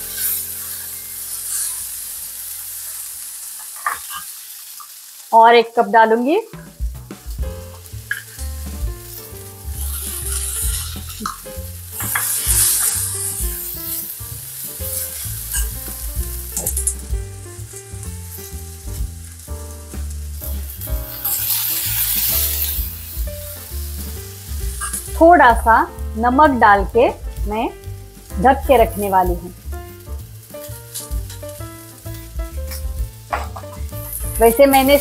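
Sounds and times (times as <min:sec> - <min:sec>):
lentils sizzling in hot oil: 0:00.0 - 0:35.0
steel spoon stirring: 0:09.7 - 0:11.4.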